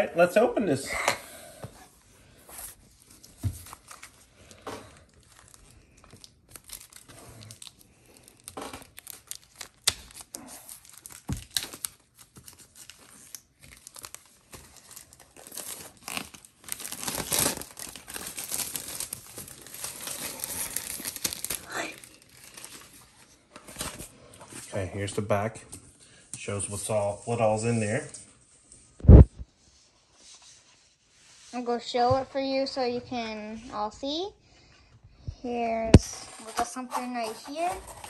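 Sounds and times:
shrink-wrap crinkling and tearing: 3.0s - 24.1s.

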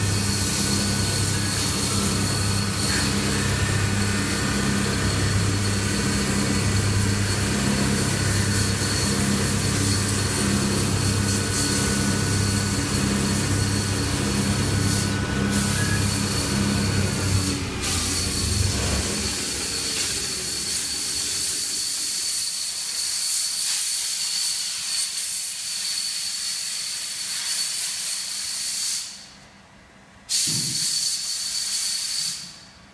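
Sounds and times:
spindle drive hum: 0.0s - 21.1s
thin high whine: 0.0s - 23.7s.

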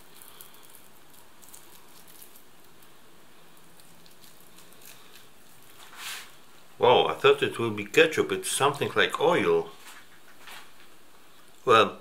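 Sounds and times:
sauce sachet crinkling: 0.0s - 6.4s
low room hiss: 0.0s - 12.0s.

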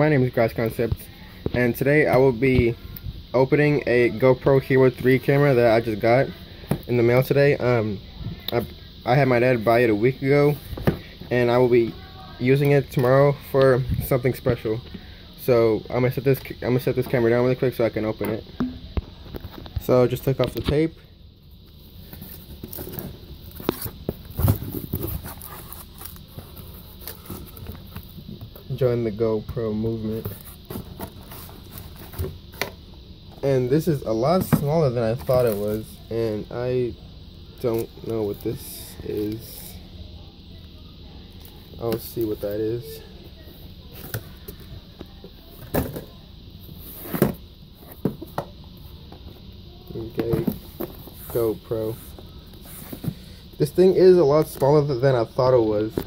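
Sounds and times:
cardboard flaps rustling and scraping: 22.0s - 28.0s.

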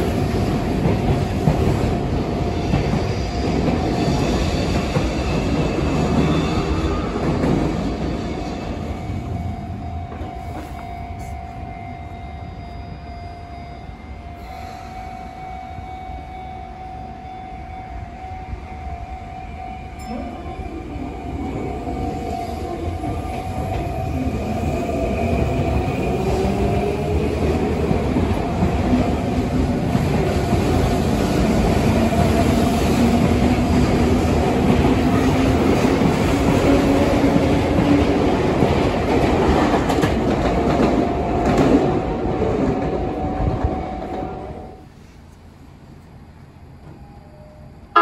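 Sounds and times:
electric train rumble: 0.0s - 48.0s.

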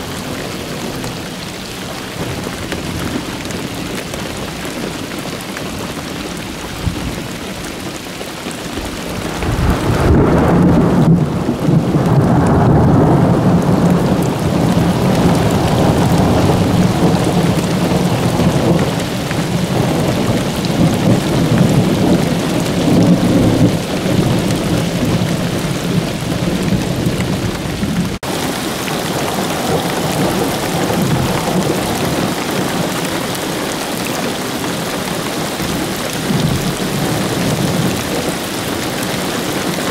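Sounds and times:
steady rain: 0.0s - 39.9s
thunder rumbling: 8.8s - 39.9s.

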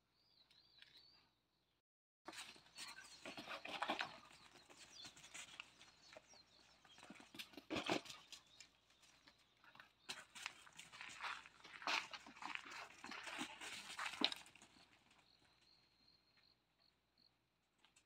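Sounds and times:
puppies chirping: 2.3s - 9.7s
dogs scuffing on dirt: 2.3s - 15.6s.

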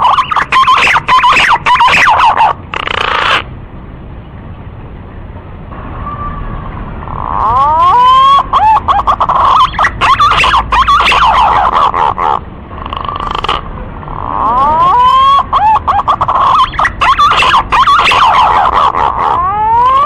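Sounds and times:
recorded bird call whistles: 0.0s - 2.6s, 7.6s - 11.8s, 14.5s - 18.8s.

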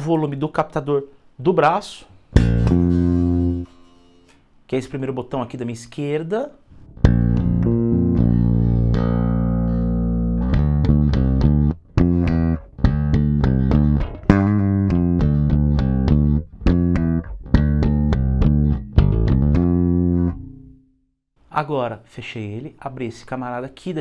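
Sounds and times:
electric bass plucked fingerstyle: 2.3s - 4.4s, 6.8s - 20.9s.

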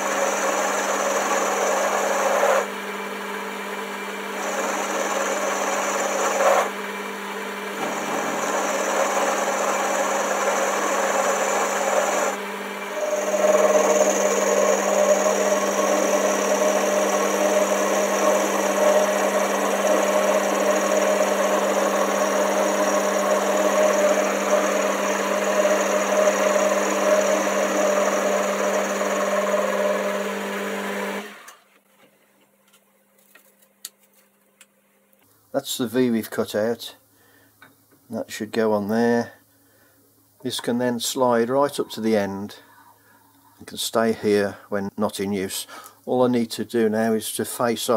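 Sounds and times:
end mill cutting steel: 0.0s - 2.7s, 4.1s - 30.5s
lathe humming: 0.0s - 31.6s.

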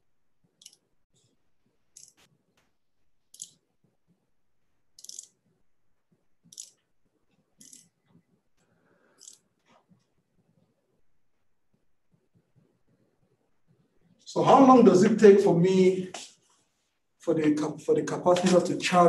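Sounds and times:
sharp clicks: 0.5s - 0.9s, 3.3s - 3.7s, 5.0s - 5.4s, 6.4s - 6.9s, 7.6s - 8.0s
stylus scratching while writing: 5.0s - 11.0s, 11.6s - 14.2s.

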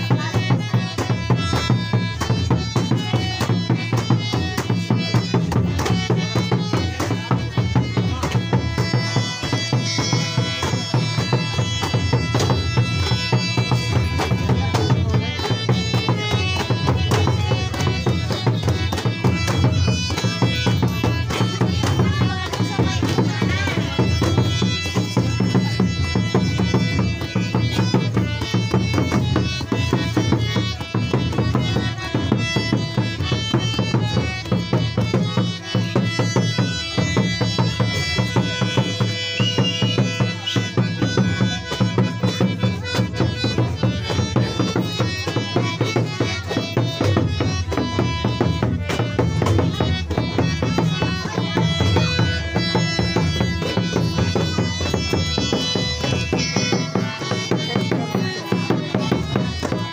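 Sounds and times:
barrel drum beating: 0.0s - 59.9s.

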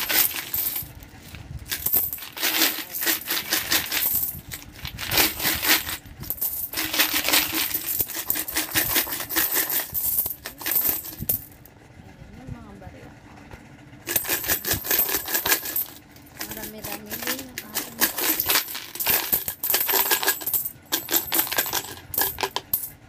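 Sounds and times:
coins clinking onto pile: 0.0s - 0.9s, 1.7s - 11.5s, 14.1s - 22.9s
coins rattling in piggy bank: 0.0s - 1.0s, 1.7s - 11.6s, 14.1s - 23.0s.

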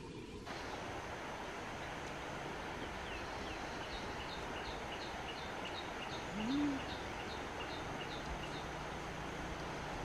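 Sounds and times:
background noise: 0.0s - 10.0s
low rising call: 6.2s - 7.0s.

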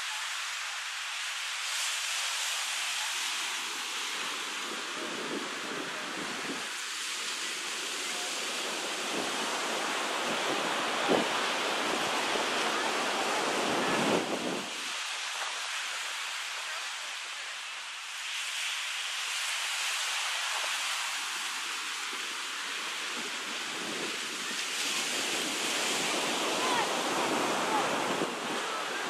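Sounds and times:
small waves breaking on sand: 0.0s - 29.0s
wind rumbling on microphone: 3.5s - 15.6s, 20.5s - 29.0s.

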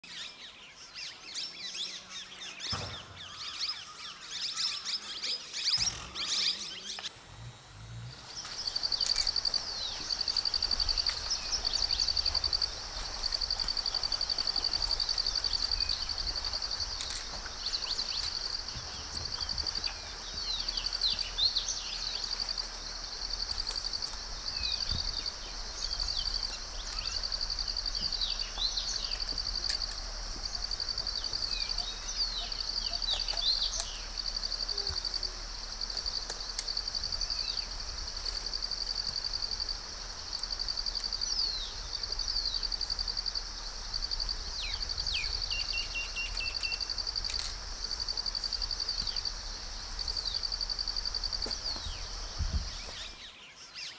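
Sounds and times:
high insect trill: 2.7s - 53.9s
bird chirps: 30.6s - 35.0s.

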